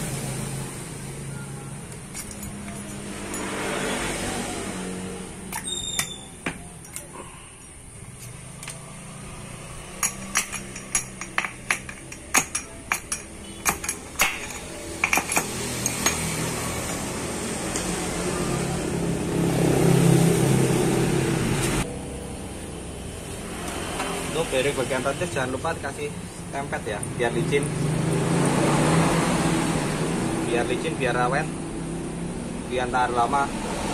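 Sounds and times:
metallic clicks and clinks: 1.8 - 3.8, 5.4 - 18.0.

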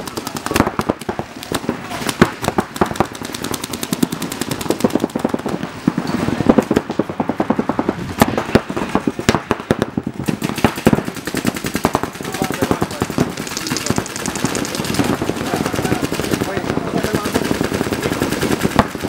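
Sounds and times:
paintball guns firing pops: 0.0 - 5.6, 9.7 - 19.0.

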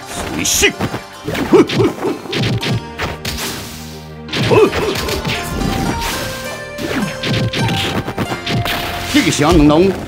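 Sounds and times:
dramatic background music: 0.0 - 10.0.

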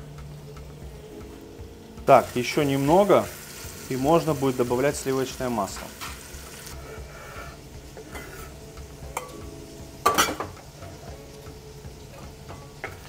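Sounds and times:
low steady kitchen hum: 0.0 - 13.0
utensils scraping: 6.7 - 8.6
ceramic bowl and knife clatter: 10.0 - 10.6.

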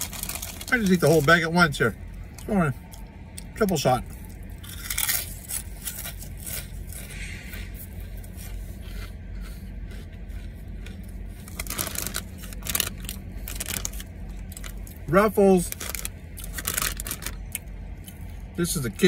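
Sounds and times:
plastic bag crinkling: 0.0 - 1.4, 11.5 - 14.8, 15.6 - 17.6
chewing crunchy chips: 0.0 - 19.0
steady low hum: 0.0 - 19.0.

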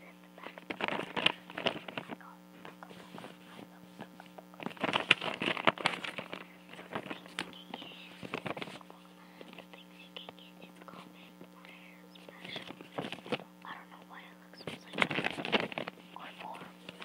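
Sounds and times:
electrical hum: 0.0 - 17.0
paper rustling and crinkling: 0.4 - 9.8, 12.2 - 13.4, 14.6 - 17.0.

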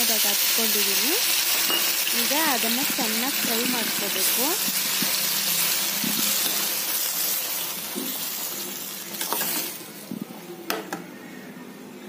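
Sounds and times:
tomatoes sizzling in hot oil: 0.0 - 10.1
metal spoon clinking against pan: 1.7 - 2.0.

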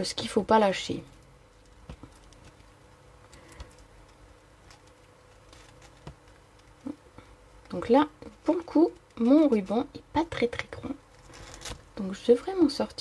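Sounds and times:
ribbon rustling: 1.0 - 9.9, 10.8 - 12.0.

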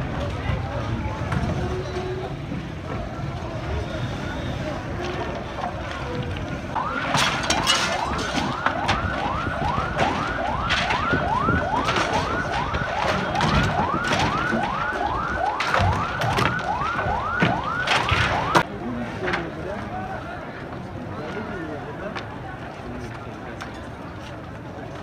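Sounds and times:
siren yelping: 6.8 - 18.6.

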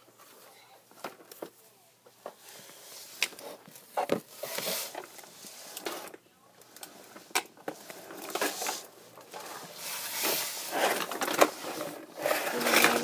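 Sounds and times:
toy car scraping along: 6.9 - 13.0.

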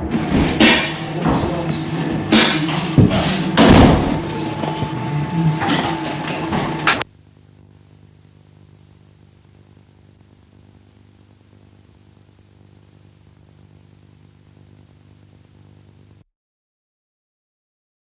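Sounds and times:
loud noisy burst: 0.1 - 7.0
faint electrical hum with hiss: 7.0 - 16.2.

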